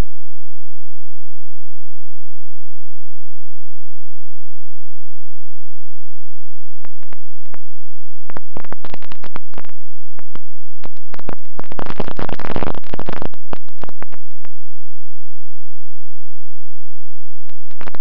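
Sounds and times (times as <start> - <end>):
faint steady hum: 0.0 - 18.0
crackling and clicking: 6.8 - 14.6, 17.4 - 18.0.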